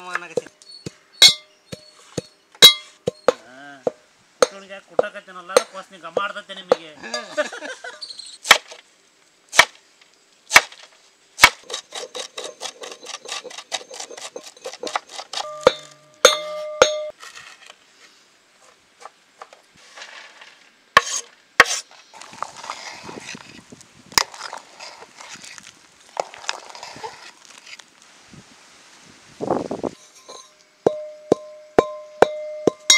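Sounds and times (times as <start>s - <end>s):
short metallic ring: 1.2s - 2.0s, 2.6s - 3.3s, 15.4s - 17.2s, 30.0s - 32.9s.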